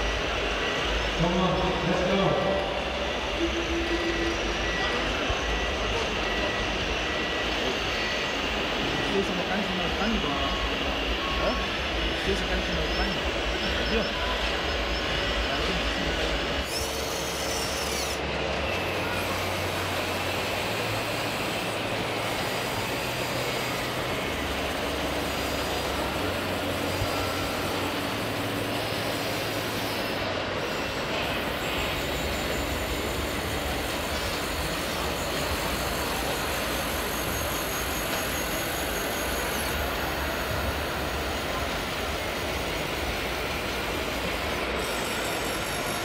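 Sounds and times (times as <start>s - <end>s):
mini excavator mechanical whirring: 12.9s - 46.0s.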